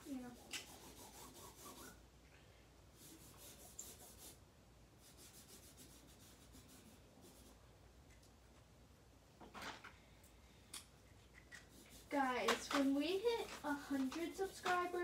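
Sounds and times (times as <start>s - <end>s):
marker scratching on fabric: 0.0s - 2.0s, 3.0s - 4.4s, 5.0s - 7.6s, 11.4s - 15.0s.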